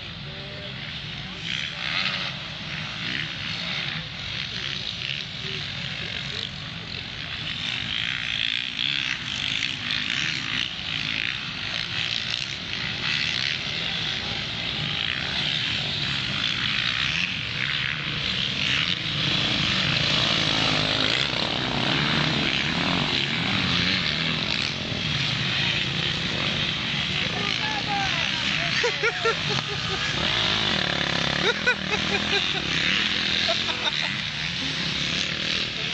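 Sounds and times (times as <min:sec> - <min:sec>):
dirt bike engines revving: 0:00.0 - 0:35.9.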